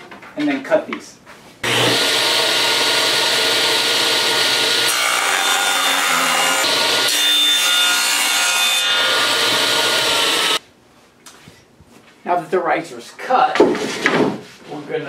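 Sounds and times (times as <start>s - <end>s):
table saw cutting wood: 1.6s - 10.6s.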